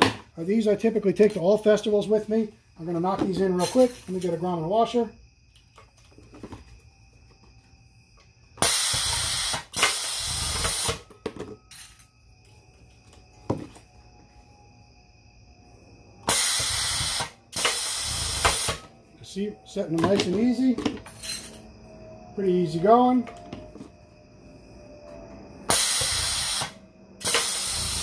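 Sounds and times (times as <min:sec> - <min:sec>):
press hissing bursts: 0:16.3 - 0:18.8, 0:25.7 - 0:28.0.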